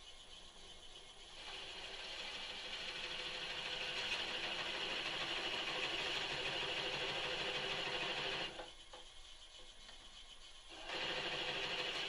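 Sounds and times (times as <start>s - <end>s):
lathe humming: 1.3s - 8.7s.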